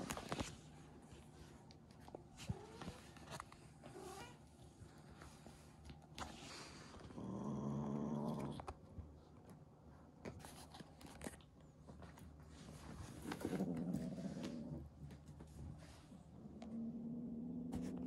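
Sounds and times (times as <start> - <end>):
kitten growling low: 7.0 - 8.7, 13.2 - 15.0, 16.2 - 18.0
paws and toy scuffing on rug: 10.2 - 16.2.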